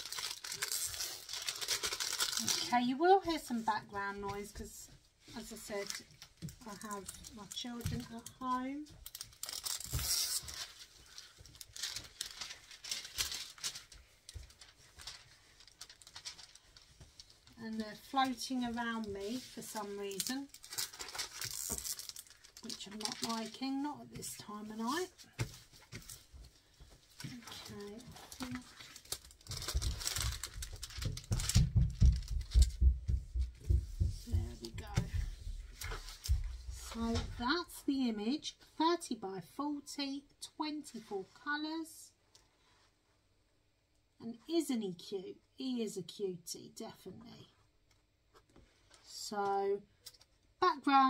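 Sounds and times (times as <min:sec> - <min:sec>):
plastic film peeling and crinkling: 0:00.0 - 0:03.7, 0:05.2 - 0:23.9, 0:24.8 - 0:32.9, 0:33.7 - 0:37.2
dull thumps: 0:30.5 - 0:36.9.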